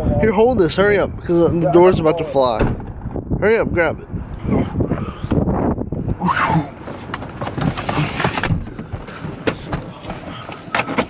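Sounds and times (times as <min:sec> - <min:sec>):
wind buffeting microphone: 0:00.0 - 0:10.4
rustling handling noise: 0:06.8 - 0:11.0.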